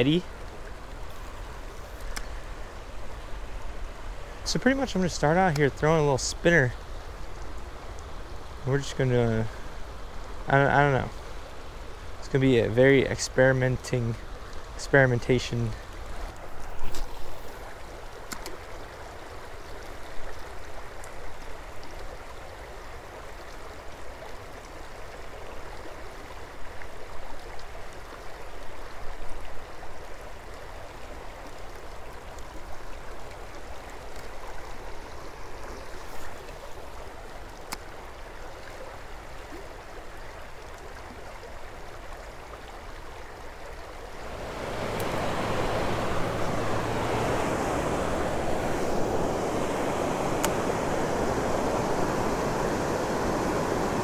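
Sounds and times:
creek water flowing over rocks: 0.0s - 54.0s
faint clicks: 2.0s - 2.4s.

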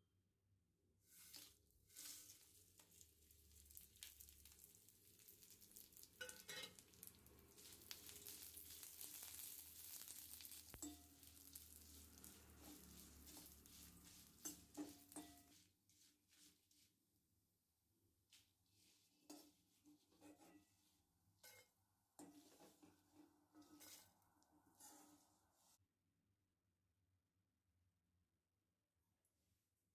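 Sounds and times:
chillies sizzling in pan: 1.0s - 15.7s, 22.2s - 25.8s
metal spoon scraping pan: 6.2s - 7.0s, 7.6s - 15.6s, 19.2s - 20.8s, 21.4s - 25.4s.

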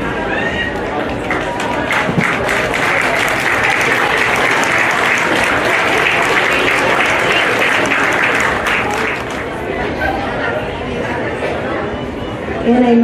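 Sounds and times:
crowd applauding: 0.4s - 10.4s.

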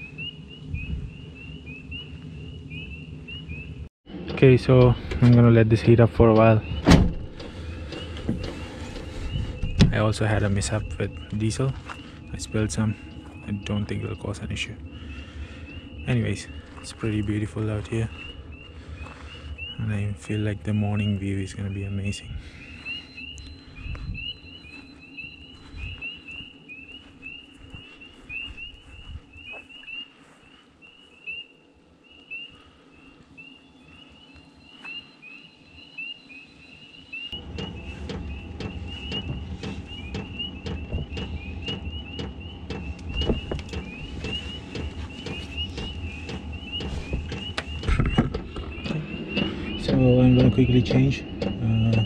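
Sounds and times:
high chirping chorus: 0.0s - 52.0s
diesel heater running: 2.2s - 29.2s, 37.3s - 52.0s.

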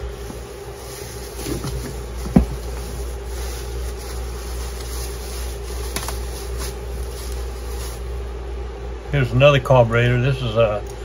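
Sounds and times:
rustling plastic and cardboard: 0.0s - 8.3s
low background hum: 0.0s - 11.0s.

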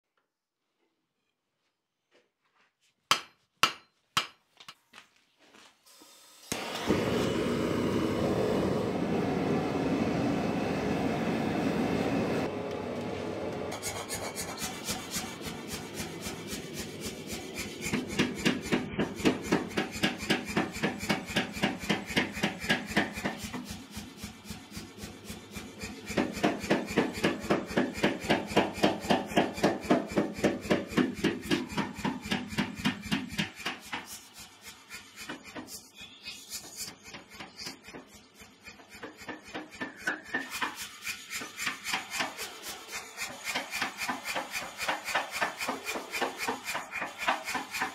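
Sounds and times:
power hammer pounding steel: 13.8s - 35.8s, 36.9s - 47.9s.

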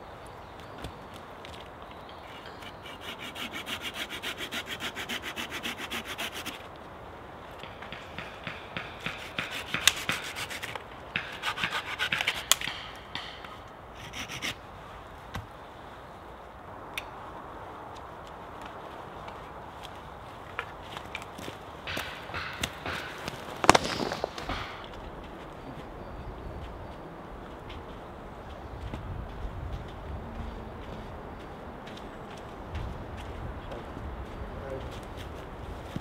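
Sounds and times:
hand saw cutting branch: 2.6s - 6.7s, 8.2s - 13.4s, 14.0s - 14.6s.

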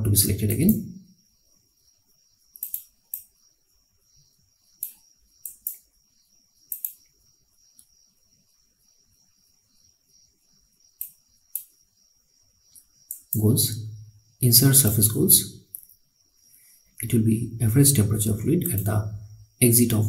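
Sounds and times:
faint high-pitched whine: 0.0s - 20.0s
mouse button clicks: 2.6s - 3.3s.

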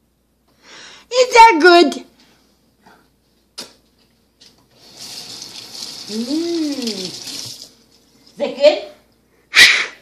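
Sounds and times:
water running into sink: 4.6s - 8.4s.

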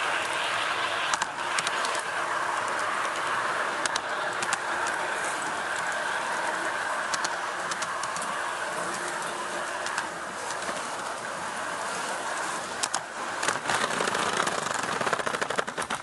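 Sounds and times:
model train motor and wheel hum: 0.0s - 16.0s
wheels clattering over track: 0.0s - 16.0s.

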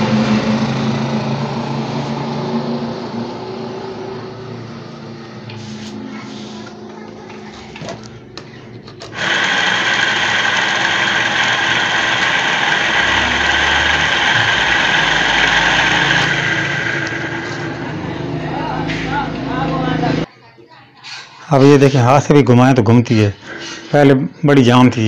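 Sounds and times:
electric motor whining: 9.1s - 18.6s.

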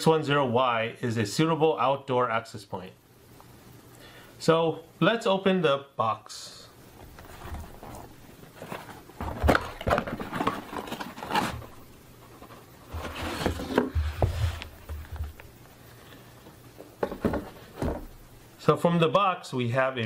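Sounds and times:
cardboard lid scraping: 7.1s - 15.4s.

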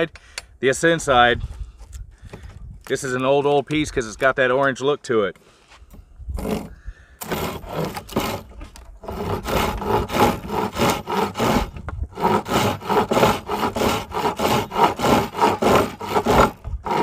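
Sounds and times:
hand saw rasping through wood: 6.4s - 17.0s.

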